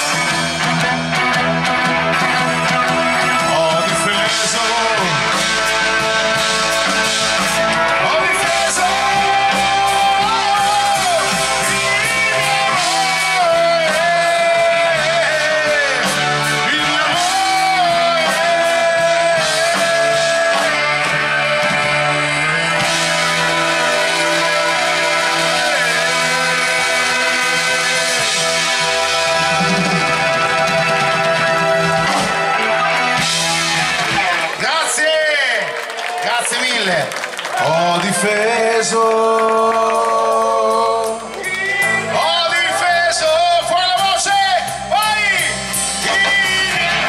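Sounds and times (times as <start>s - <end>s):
harmonica bending notes: 0.0s - 34.4s
live rock band: 0.0s - 47.0s.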